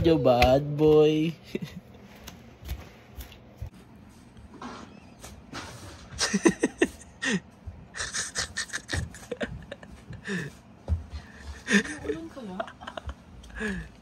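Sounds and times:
person laughing breathily: 0:06.2 - 0:14.0.

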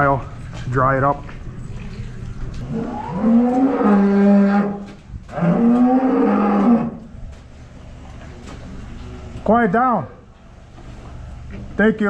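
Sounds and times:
cow mooing: 0:02.6 - 0:07.1.

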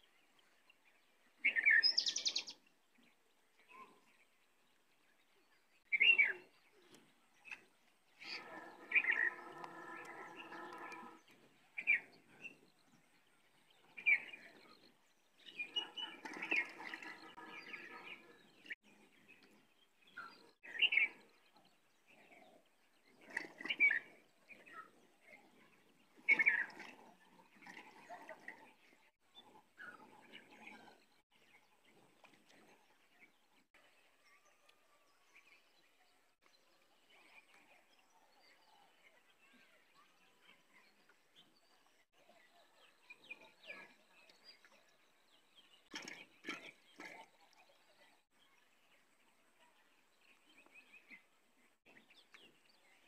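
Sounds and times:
drawn-out pitched bird calls: 0:08.2 - 0:11.2.

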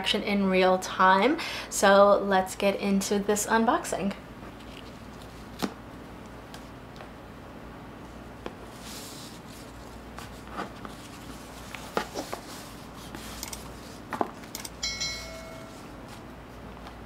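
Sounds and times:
brief ringing tone: 0:14.8 - 0:15.9.

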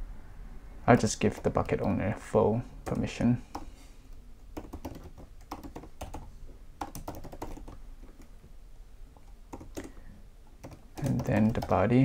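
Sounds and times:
typing on keyboard: 0:04.6 - 0:08.3, 0:09.5 - 0:10.0, 0:10.6 - 0:11.8.

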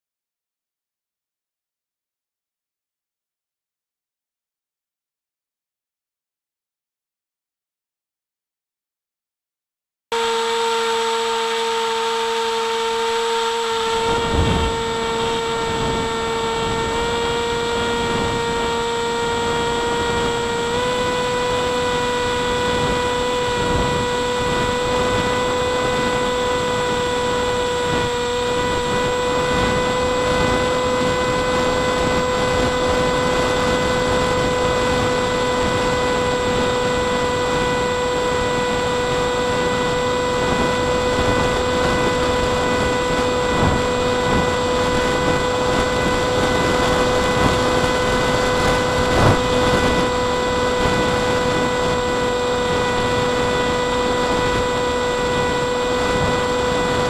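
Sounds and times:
electric motor whine: 0:10.1 - 0:57.0
wind rushing over camera: 0:13.8 - 0:57.0.

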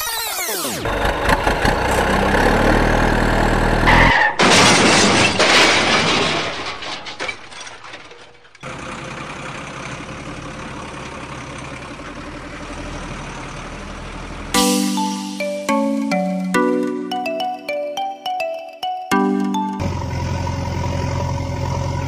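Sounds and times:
truck engine running: 0:00.8 - 0:04.1, 0:19.5 - 0:22.0
loud crash: 0:04.1 - 0:08.2.

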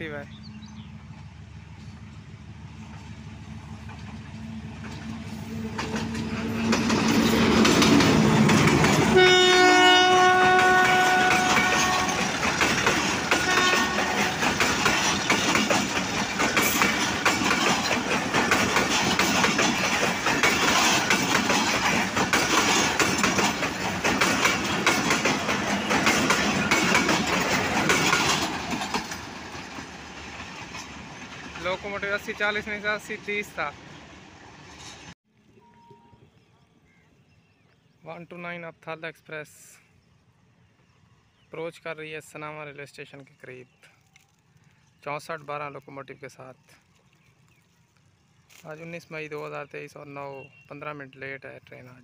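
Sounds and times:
diesel locomotive engine: 0:00.0 - 0:36.8
train wheels clicking over rail joints: 0:00.7 - 0:32.6
train horn blasts: 0:05.3 - 0:06.7, 0:09.1 - 0:12.3, 0:13.3 - 0:14.4, 0:35.5 - 0:36.4.

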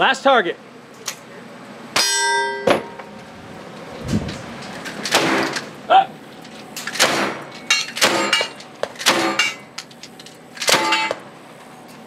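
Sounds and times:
steel target ringing: 0:02.0 - 0:03.1.

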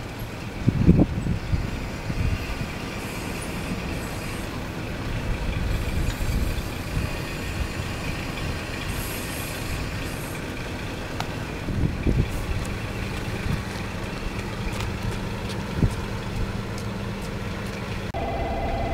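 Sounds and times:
diesel train engine rumbling: 0:00.0 - 0:18.9
faint high squeal: 0:18.2 - 0:18.9.

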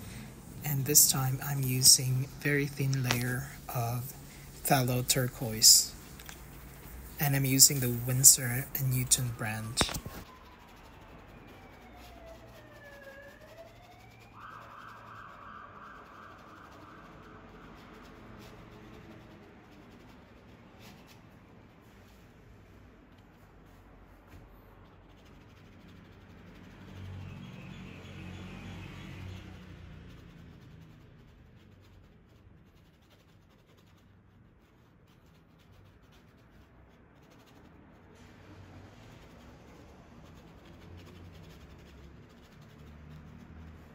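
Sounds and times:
paintbrush scratching on canvas: 0:00.1 - 0:22.4, 0:23.0 - 0:43.9
faint siren wail: 0:10.0 - 0:19.2, 0:26.1 - 0:30.6.

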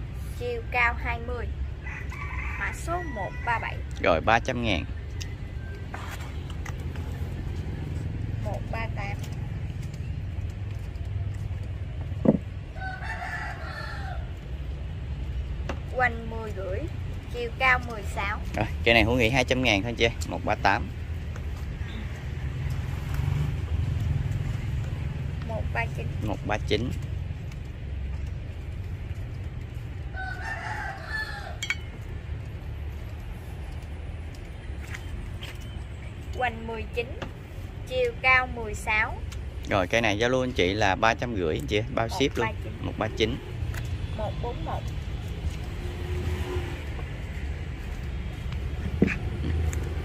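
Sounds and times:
rooster crowing: 0:01.8 - 0:03.8, 0:12.7 - 0:14.4, 0:30.1 - 0:32.0.

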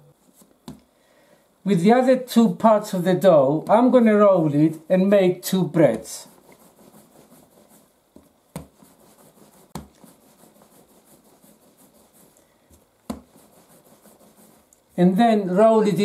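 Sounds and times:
hands rubbing bread dough: 0:05.7 - 0:15.2.

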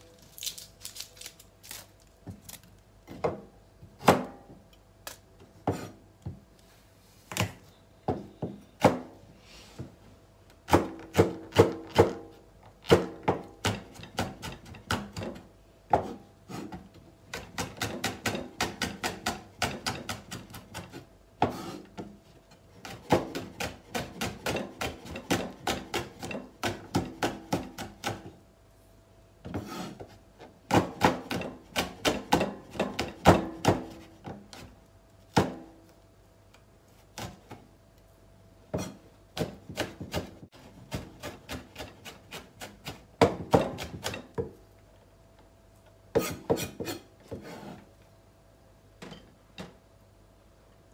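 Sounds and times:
knife chopping on wooden board: 0:38.7 - 0:44.6.

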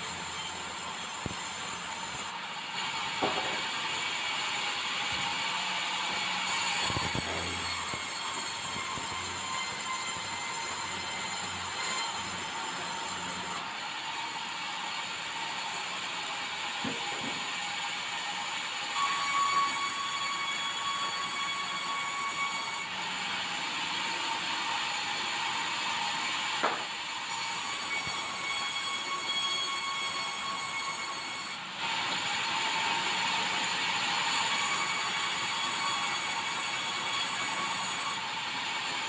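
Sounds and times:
band saw cutting wood: 0:00.0 - 0:16.1.

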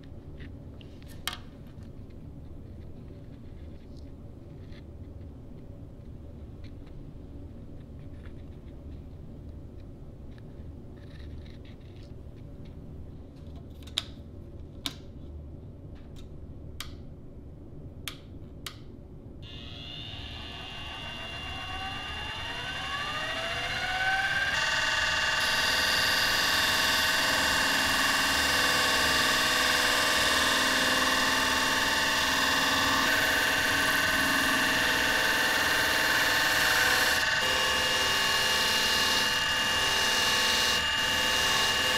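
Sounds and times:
drill press motor whine: 0:19.4 - 0:41.9.

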